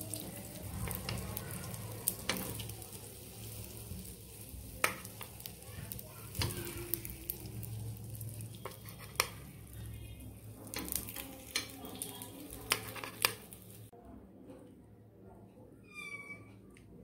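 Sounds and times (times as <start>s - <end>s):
oil sizzling in a pan: 0.0s - 13.9s
metal spoon clinking on pan: 10.7s - 13.5s.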